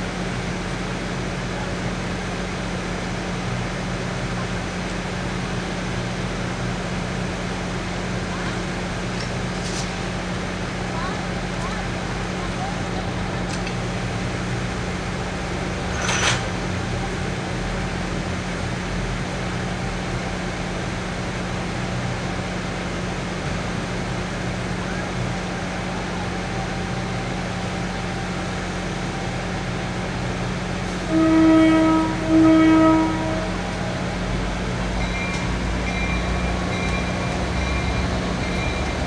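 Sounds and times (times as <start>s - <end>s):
diesel locomotive idling: 0.0s - 39.0s
train horn blasts: 30.9s - 34.5s.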